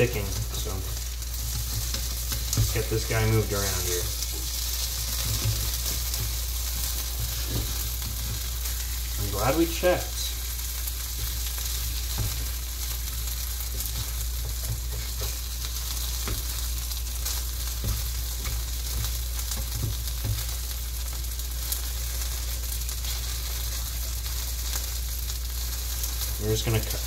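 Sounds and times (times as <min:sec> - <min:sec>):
food sizzling in a frying pan: 0:00.0 - 0:27.0.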